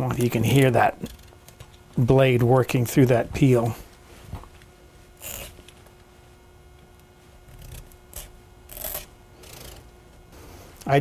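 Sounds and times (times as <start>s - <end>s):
blade scraping squash skin: 5.2s - 5.7s, 7.4s - 9.9s.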